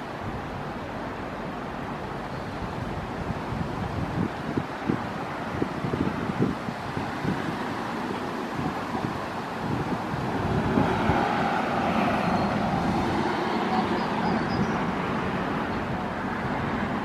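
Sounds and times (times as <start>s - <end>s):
vehicle passing: 6.9s - 17.0s.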